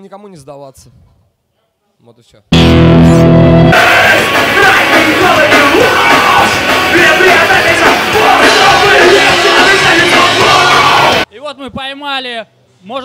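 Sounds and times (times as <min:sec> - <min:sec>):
live rock band: 0:02.6 - 0:11.2
man singing: 0:03.8 - 0:11.2.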